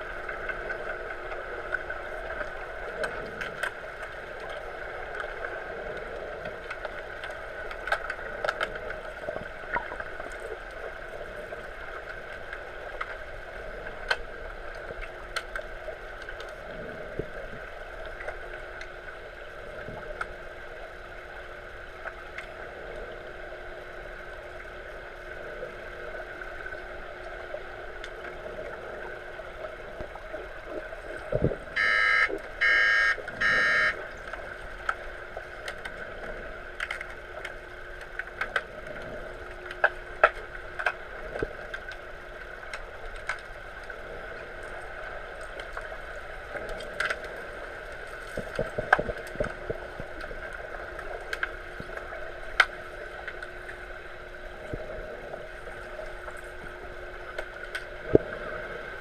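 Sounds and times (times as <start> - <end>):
steady pool hum: 0.0 - 59.0
underwater buzzer blasts: 31.8 - 34.0.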